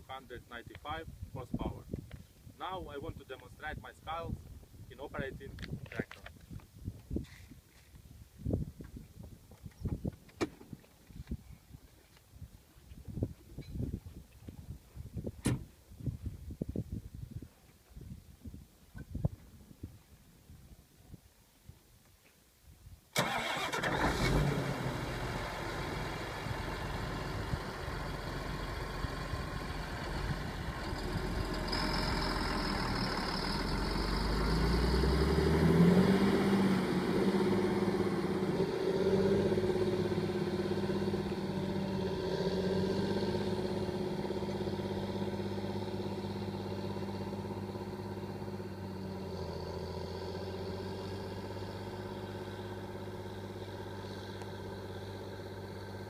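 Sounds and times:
tractor diesel engine under load: 0:23.2 - 0:56.0.

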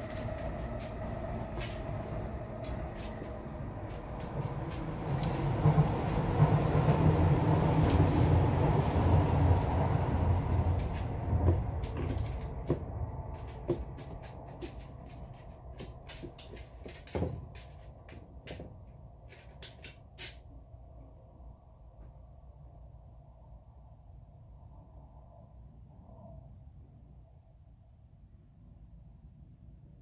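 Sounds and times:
low rumble: 0:00.0 - 0:16.3
rope leash dragging: 0:00.0 - 0:18.2
dog claws clicking on tiles: 0:10.7 - 0:18.7, 0:19.3 - 0:20.5.

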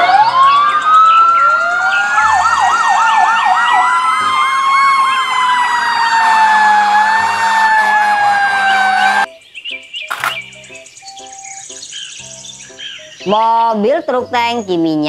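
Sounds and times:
fast yelping siren: 0:00.0 - 0:09.3
rising and falling siren wail: 0:00.0 - 0:09.3.

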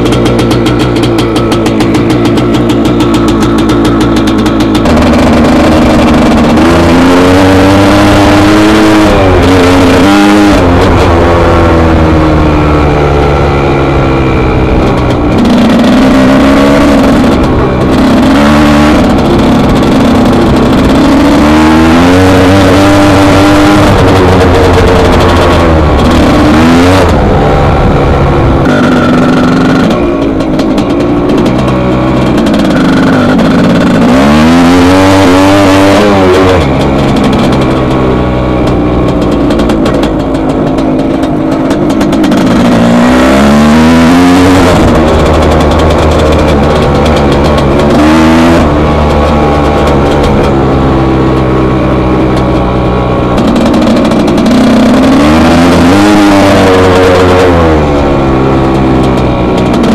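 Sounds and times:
motocross engine revving: 0:00.0 - 0:59.9.

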